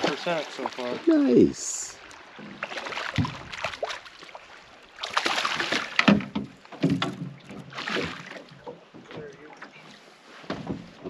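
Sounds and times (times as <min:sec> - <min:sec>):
fish splashing in water: 0:02.1 - 0:08.5.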